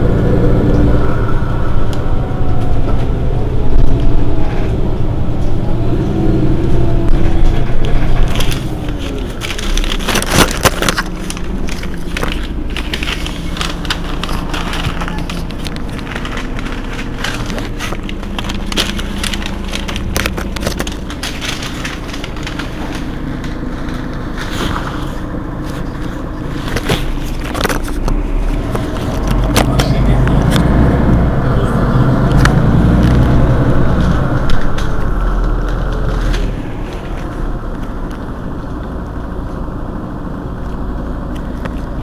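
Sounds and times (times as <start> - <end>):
bus engine idling: 0.0 - 42.0
sharp clicks and crackles: 7.1 - 31.2, 32.1 - 39.6, 40.6 - 42.0.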